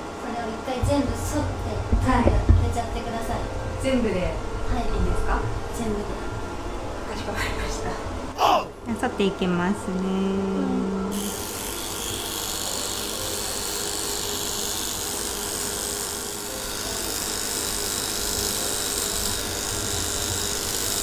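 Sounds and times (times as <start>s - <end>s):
electric trimmer buzzing: 10.9s - 21.0s.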